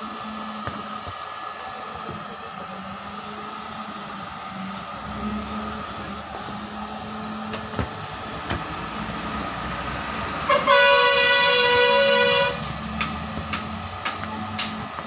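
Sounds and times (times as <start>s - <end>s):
loud horn: 10.4s - 12.7s.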